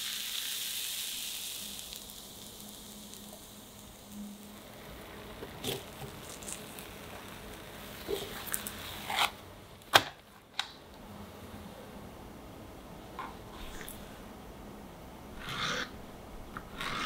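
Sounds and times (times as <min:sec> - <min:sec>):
spatula scraping frying pan: 0:15.4 - 0:16.0, 0:16.6 - 0:17.0.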